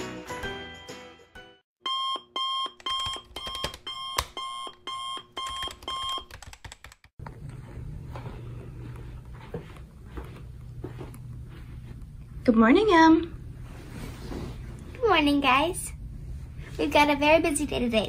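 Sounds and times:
alarm clock beeping: 1.8s - 6.3s.

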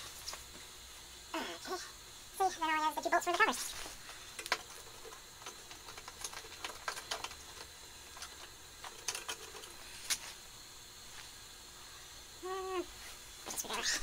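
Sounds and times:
hand tools clicking and tapping metal: 4.4s - 10.2s.

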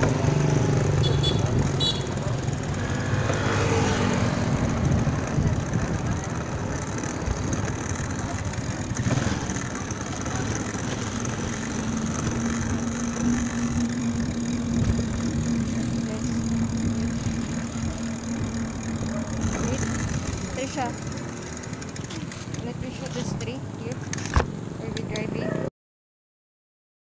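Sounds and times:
vehicle engine running: 0.0s - 25.4s
street traffic: 0.0s - 25.7s
wind rumble on microphone: 4.0s - 6.7s, 13.2s - 18.5s.

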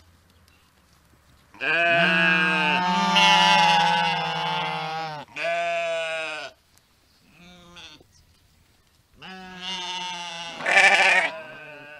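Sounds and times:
sheep bleating: 1.6s - 6.6s, 7.4s - 8.0s, 9.2s - 11.9s.

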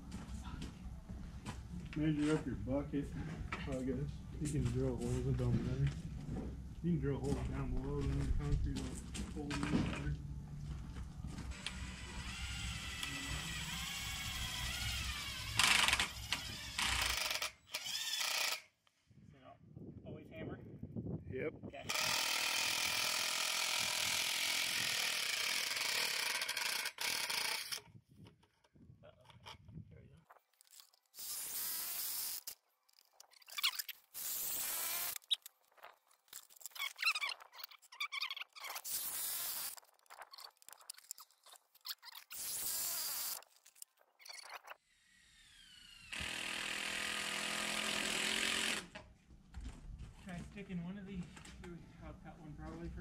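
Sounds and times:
cordless drill boring plastic pipe: 11.5s - 18.6s, 21.9s - 27.9s, 30.7s - 32.6s, 33.5s - 35.4s, 38.3s - 43.5s, 44.3s - 49.0s.

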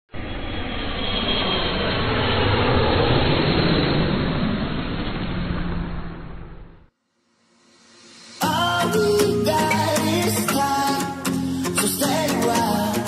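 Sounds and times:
whoosh sound effect: 7.4s - 8.7s.

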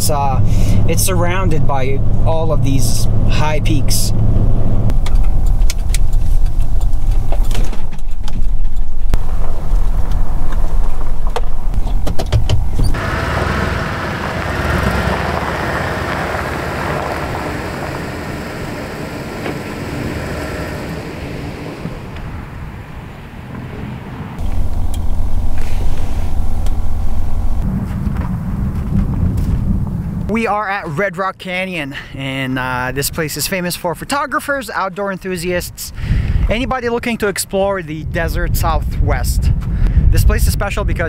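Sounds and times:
car cabin road rumble: 0.0s - 30.6s.

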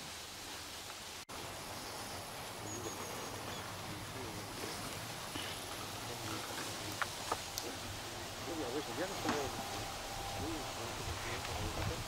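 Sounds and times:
outdoor background hiss: 0.0s - 12.0s
bird chirp: 1.7s - 5.9s.

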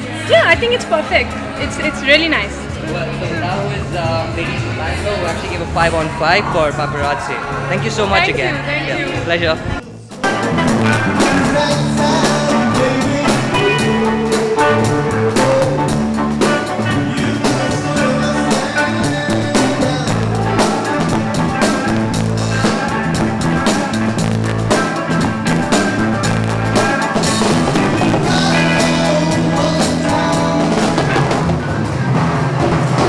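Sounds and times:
bass guitar low notes: 0.0s - 33.0s
drum kit with cymbals: 10.1s - 33.0s.

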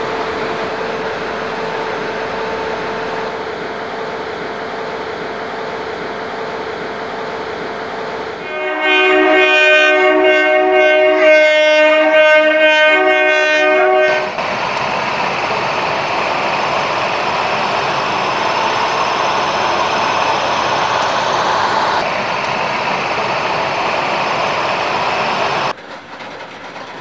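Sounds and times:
locomotive air horn blast: 8.4s - 14.4s.

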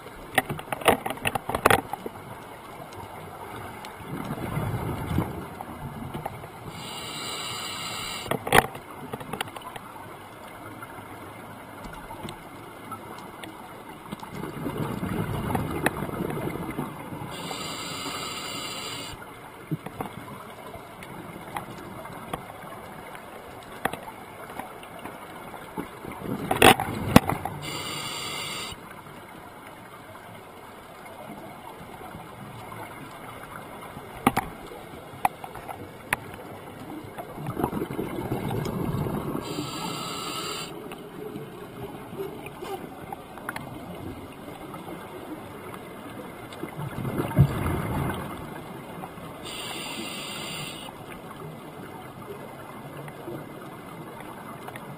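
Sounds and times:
exhaled bubbles rumbling underwater: 2.2s - 6.9s, 14.2s - 17.9s, 35.8s - 49.7s
regulator hissing inhale: 6.7s - 8.3s, 17.3s - 19.2s, 27.6s - 28.8s, 39.4s - 40.7s, 49.4s - 50.9s.

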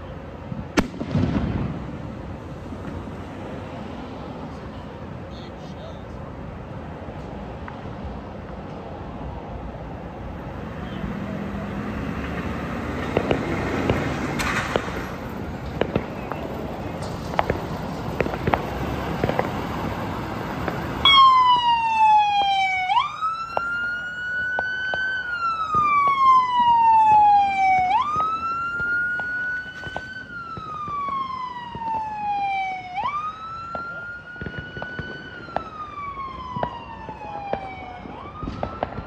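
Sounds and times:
siren wailing: 18.2s - 39.0s.

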